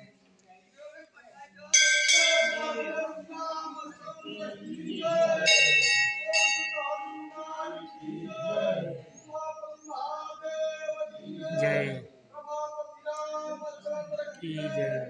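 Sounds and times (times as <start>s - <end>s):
murmur of voices: 0.0s - 15.0s
brass bell ringing: 1.8s - 3.4s, 4.3s - 8.9s.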